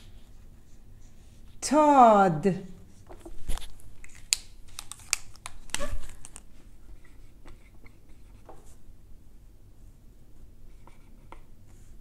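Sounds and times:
marker writing on whiteboard: 0:10.7 - 0:11.9.

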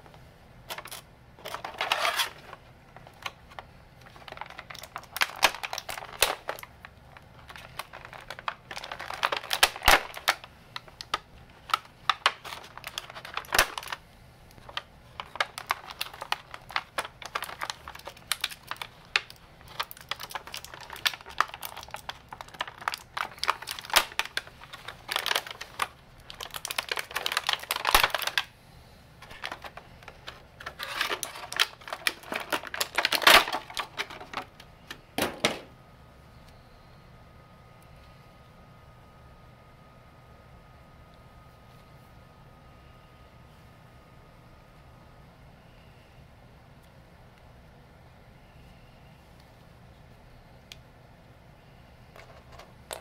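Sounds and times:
plastic packaging crinkling: 0:00.7 - 0:28.5, 0:29.2 - 0:35.4.

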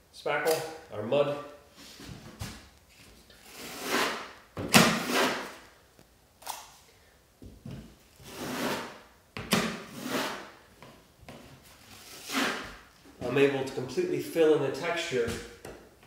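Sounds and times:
taping knife scraping wall: 0:03.3 - 0:05.6, 0:08.2 - 0:10.6, 0:11.8 - 0:12.9.

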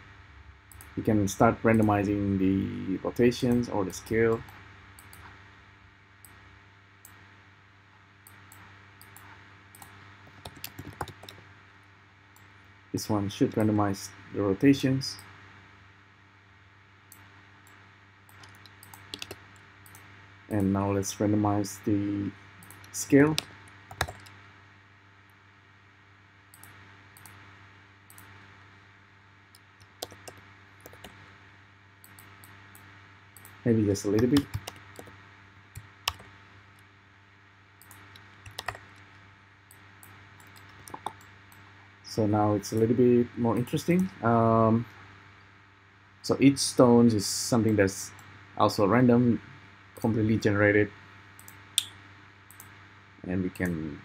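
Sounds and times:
low steady hum: 0:00.0 - 0:54.0
keyboard typing: 0:08.3 - 0:11.4, 0:18.3 - 0:20.1, 0:22.6 - 0:24.4, 0:29.6 - 0:31.2, 0:33.4 - 0:35.1, 0:35.8 - 0:36.3, 0:37.8 - 0:39.0, 0:40.4 - 0:41.3.

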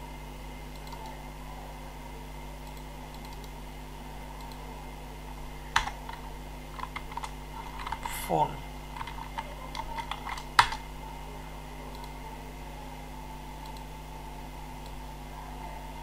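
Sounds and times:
electrical hum and hiss: 0:00.0 - 0:16.0
keyboard and mouse clicks: 0:00.7 - 0:01.2, 0:02.6 - 0:03.6, 0:05.7 - 0:06.2, 0:06.8 - 0:08.2, 0:08.9 - 0:10.8.

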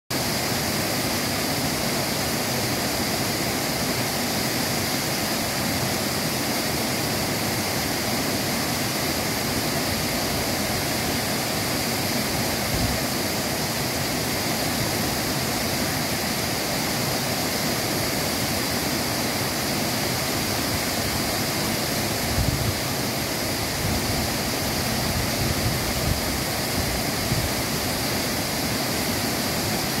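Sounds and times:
waterfall rushing: 0:00.1 - 0:30.0.

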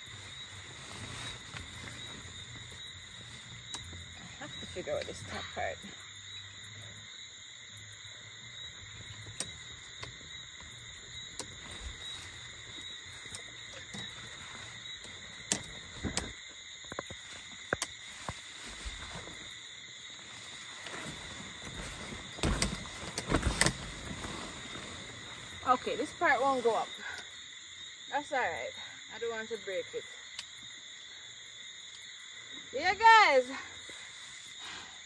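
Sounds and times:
tent fabric rustling: 0:00.0 - 0:05.8, 0:08.4 - 0:16.4, 0:17.0 - 0:26.9
chorus of evening insects: 0:00.0 - 0:35.0
tent frame clicking and knocking: 0:08.7 - 0:19.5, 0:20.2 - 0:25.6.

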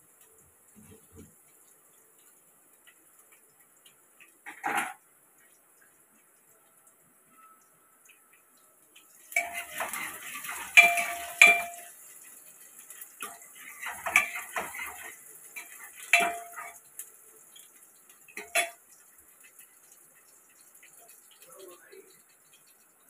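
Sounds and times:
spoon scraping metal pot: 0:09.4 - 0:11.9, 0:13.2 - 0:16.8.

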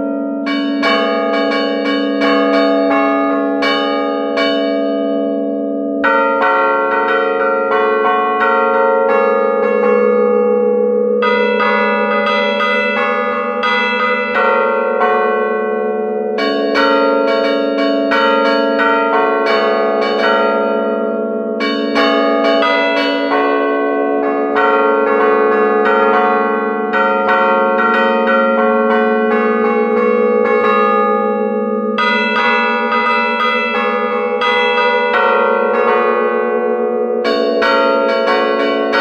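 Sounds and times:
church bells ringing: 0:00.0 - 0:39.0.

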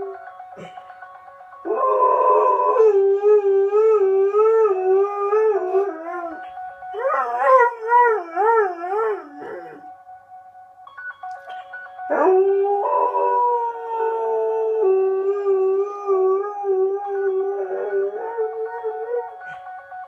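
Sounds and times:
dog howling: 0:01.7 - 0:09.8, 0:12.1 - 0:19.7.

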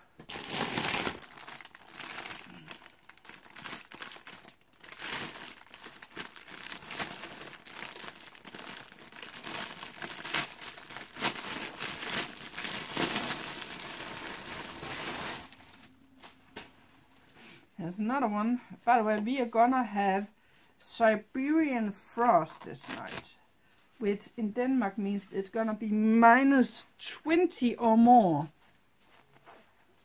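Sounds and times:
plastic packaging crinkling: 0:00.1 - 0:16.7.

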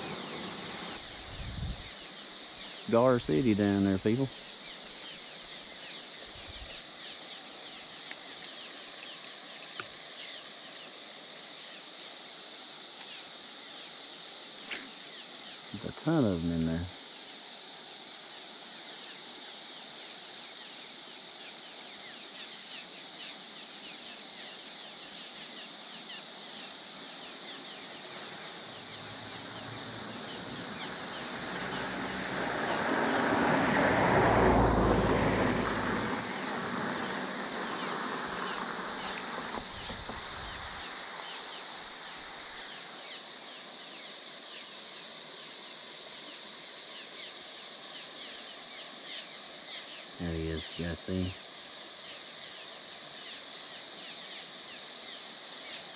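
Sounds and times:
cicadas droning: 0:00.0 - 0:55.9
vehicle passing: 0:29.0 - 0:40.7.

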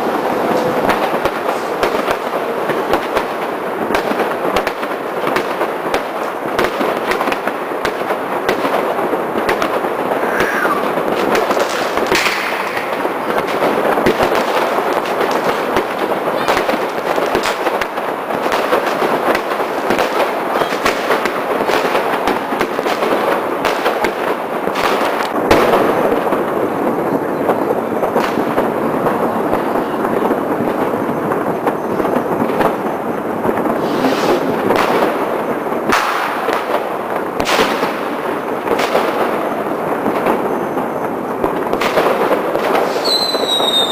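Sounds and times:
fireworks crackling and banging: 0:00.0 - 0:43.9
firework whistles: 0:10.0 - 0:13.5, 0:19.6 - 0:21.3, 0:30.8 - 0:36.5, 0:40.0 - 0:42.0, 0:42.6 - 0:43.9.

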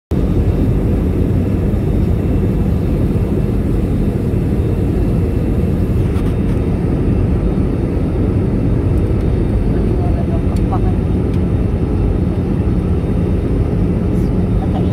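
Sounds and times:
airplane cabin engine rush: 0:00.1 - 0:14.9.

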